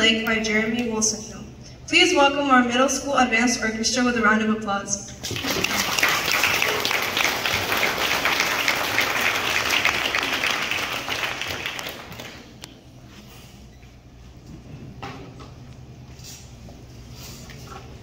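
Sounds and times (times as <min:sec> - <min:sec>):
audience applauding: 0:05.2 - 0:12.6.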